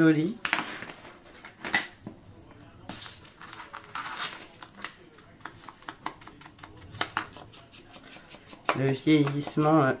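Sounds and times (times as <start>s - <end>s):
paper rustling: 2.9s - 9.7s.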